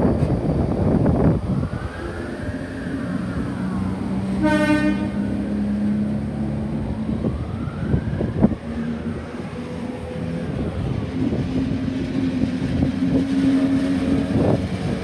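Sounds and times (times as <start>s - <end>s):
electric train motors whining: 0.0s - 15.0s
train horn toot: 4.2s - 5.6s.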